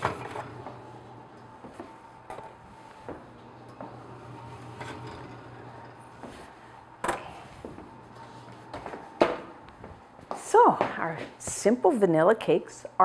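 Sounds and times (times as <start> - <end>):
steady low hum: 0.2 - 10.4.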